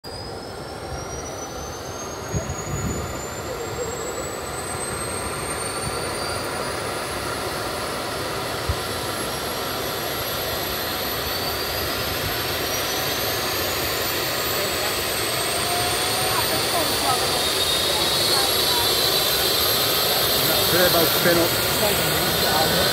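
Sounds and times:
helicopter turbines whining: 0:00.1 - 0:22.9
steady rush: 0:14.8 - 0:22.9.

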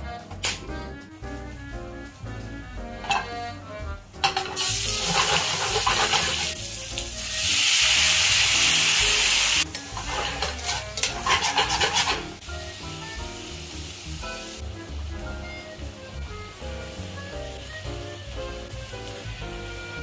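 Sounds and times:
tongs clicking and scraping pan: 0:03.0 - 0:03.4, 0:04.2 - 0:06.6, 0:09.6 - 0:12.4
fish frying in oil: 0:04.2 - 0:20.0
water hissing in hot oil: 0:04.4 - 0:20.0.

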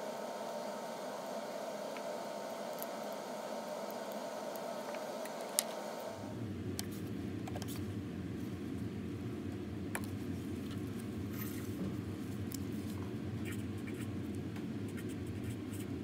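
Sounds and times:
steady hiss: 0:00.0 - 0:06.4.

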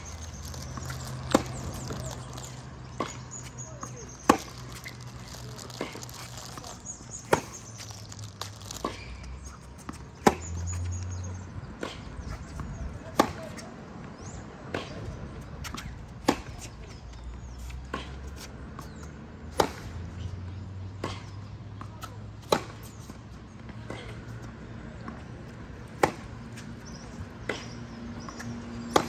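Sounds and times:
tennis ball hits: 0:00.0 - 0:11.0, 0:11.7 - 0:13.7, 0:21.0 - 0:23.0, 0:25.0 - 0:29.0.

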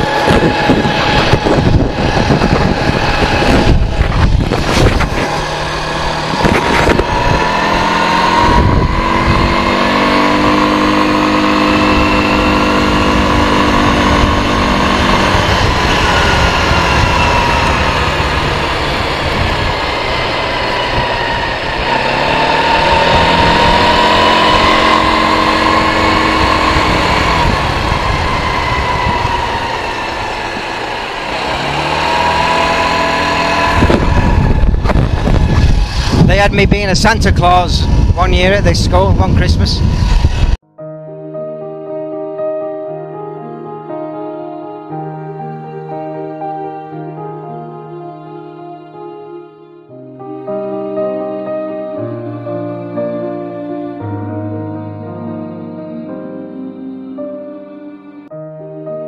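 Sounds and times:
quad bike engine revving: 0:00.0 - 0:40.6.

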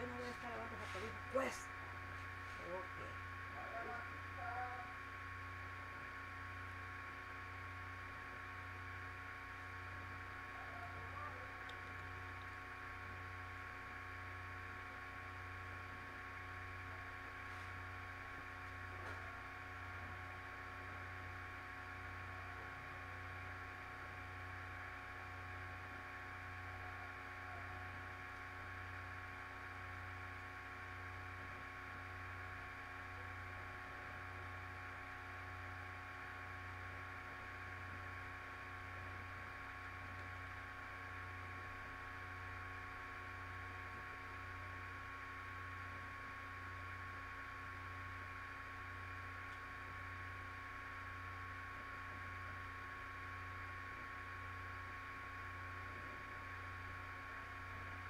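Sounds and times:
electrical hum with hiss: 0:00.0 - 0:58.0
low pulsing hum: 0:00.0 - 0:58.0.

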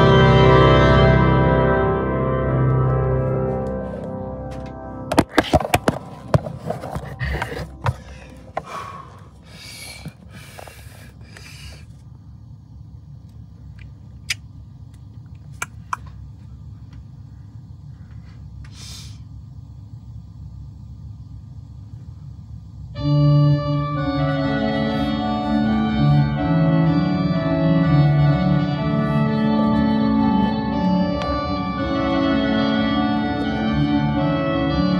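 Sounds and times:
organ chord: 0:00.0 - 0:09.2, 0:22.9 - 0:34.9
low steady rumble: 0:05.8 - 0:34.9.

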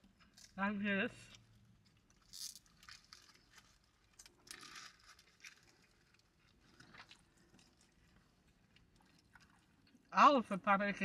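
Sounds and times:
faint chewing: 0:01.3 - 0:10.1
paper wrapper crinkling: 0:02.1 - 0:06.4.

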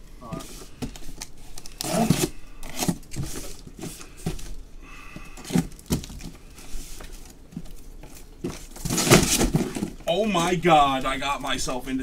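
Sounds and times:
cardboard scraping and rustling: 0:00.2 - 0:04.6, 0:05.4 - 0:10.2.

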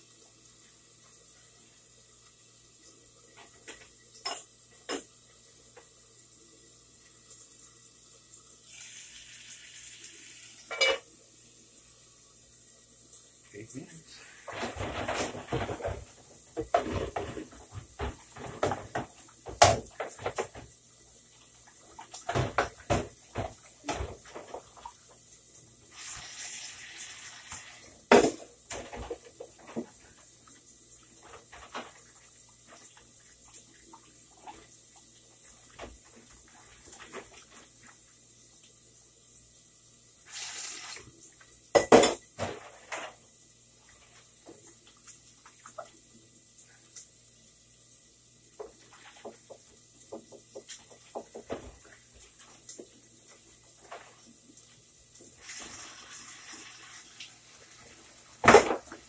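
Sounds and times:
pots and pans clattering: 0:03.4 - 0:05.1, 0:10.7 - 0:11.1, 0:14.4 - 0:20.7, 0:22.1 - 0:24.9, 0:28.1 - 0:30.2, 0:41.7 - 0:43.2, 0:58.4 - 0:59.0.

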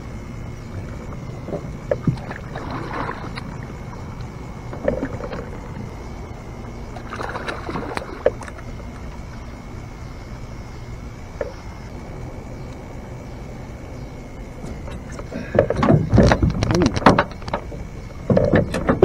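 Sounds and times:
water splashing beside a boat: 0:00.0 - 0:12.5, 0:13.6 - 0:19.0
steady low rumble: 0:00.0 - 0:19.0
knocks against a boat: 0:14.6 - 0:19.0.

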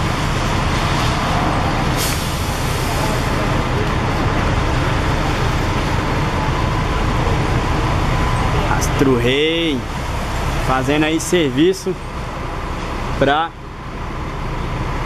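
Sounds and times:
diesel engine low rumble: 0:00.0 - 0:15.0
air brake hiss: 0:02.0 - 0:03.3.

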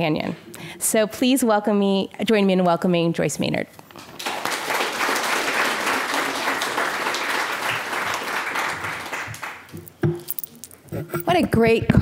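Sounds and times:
audience applauding: 0:04.1 - 0:09.7.

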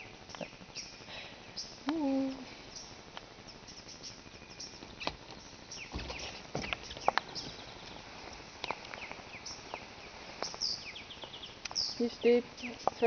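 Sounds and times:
birds chirping: 0:00.0 - 0:13.0
low thud: 0:05.9 - 0:07.5.

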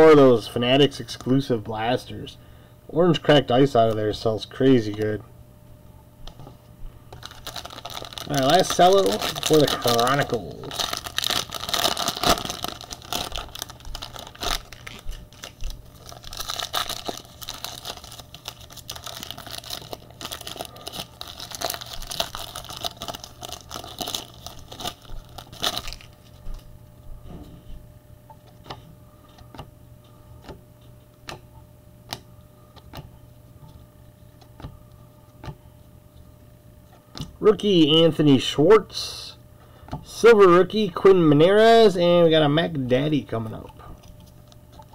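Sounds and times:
cellophane crinkling and tearing: 0:07.1 - 0:26.7
cards clicking and tapping: 0:28.6 - 0:29.7, 0:31.2 - 0:31.5, 0:32.1 - 0:33.1, 0:35.4 - 0:35.6.

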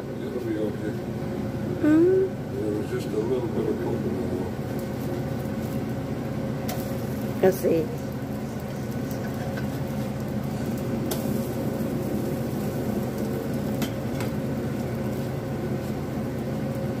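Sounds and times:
steady hum: 0:00.0 - 0:17.0
bread frying in oil: 0:03.7 - 0:17.0.

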